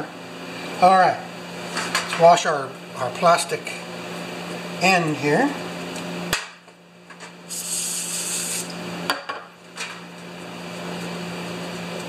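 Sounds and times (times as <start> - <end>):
aerosol spray can hissing: 7.5 - 8.7.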